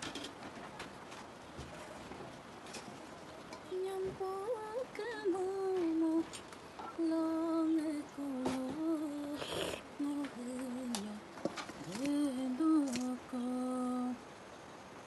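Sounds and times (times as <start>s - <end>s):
woman humming: 6.9s - 11.2s, 11.9s - 14.2s.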